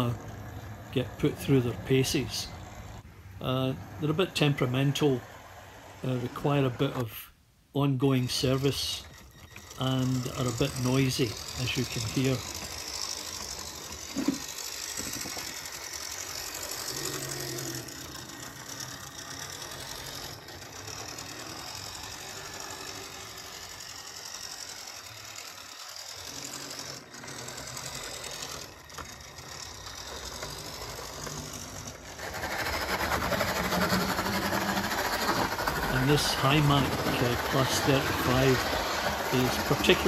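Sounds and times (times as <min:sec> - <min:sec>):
model locomotive motors grinding: 0:00.0 - 0:40.0.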